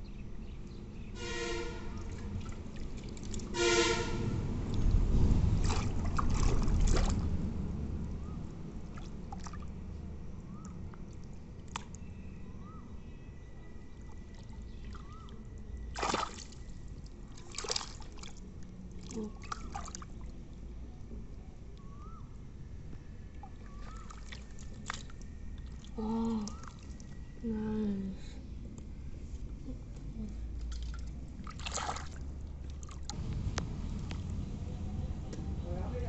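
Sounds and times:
low rumble: 1.1 - 8.9, 33.1 - 36.0
hands splashing in muddy water: 5.6 - 7.3, 15.9 - 16.6, 17.4 - 18.4, 30.7 - 32.2.

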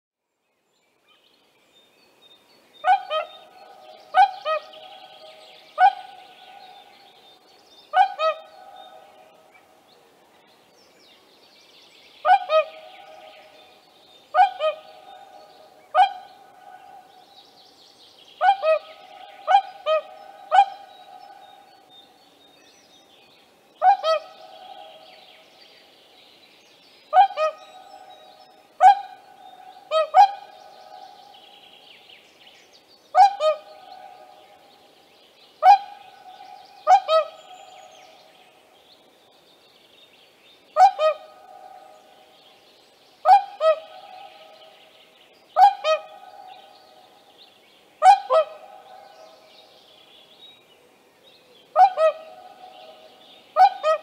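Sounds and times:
swan honking: 48.0 - 48.8, 53.6 - 54.0.

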